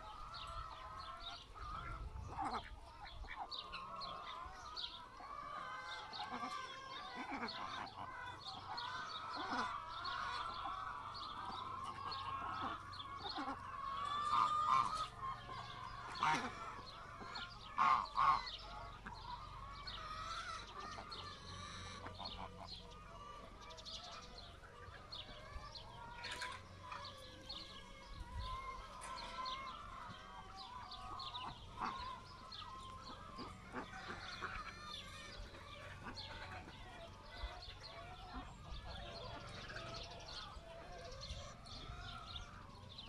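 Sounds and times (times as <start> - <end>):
geese honking: 0.0 - 43.0
hens clucking: 0.0 - 43.0.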